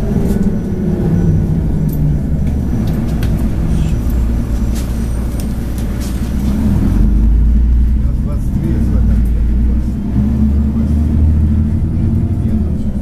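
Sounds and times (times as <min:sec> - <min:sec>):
bus engine rumble: 0:00.0 - 0:13.0.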